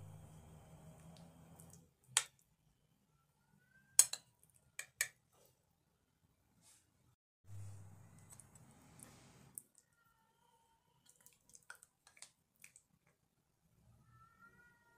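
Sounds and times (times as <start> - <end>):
spoon clicking on ceramic plate: 4.0 - 4.2, 4.8 - 5.2
spoon scooping mashed potato: 4.0 - 5.3, 8.0 - 9.8, 11.0 - 13.2.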